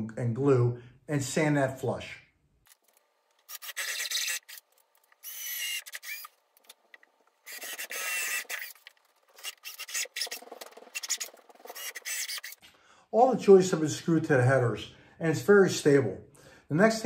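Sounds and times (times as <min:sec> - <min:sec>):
cordless drill boring into wood: 0:03.4 - 0:06.4, 0:07.4 - 0:12.6.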